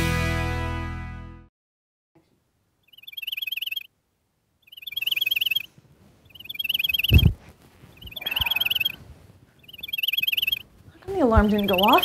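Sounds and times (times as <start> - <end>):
cell phone ringing: 2.9 - 3.9, 4.7 - 5.7, 6.3 - 7.3, 8.0 - 9.0, 9.6 - 10.6, 11.4 - 12.0.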